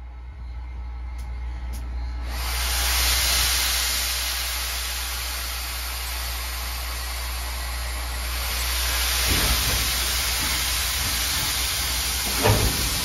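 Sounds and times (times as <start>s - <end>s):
low steady hum: 0.0s - 2.5s
locomotive venting steam hiss: 2.2s - 13.0s.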